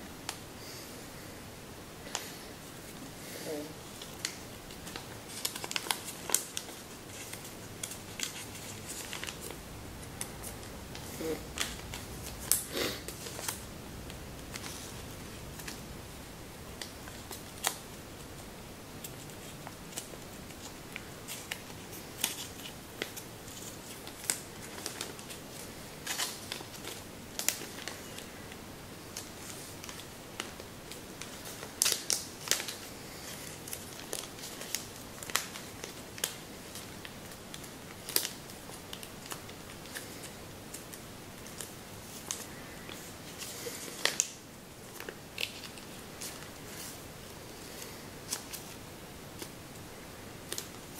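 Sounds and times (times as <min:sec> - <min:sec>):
paper crinkling and rustling: 0:03.8 - 0:15.9, 0:16.6 - 0:49.6, 0:50.4 - 0:50.9.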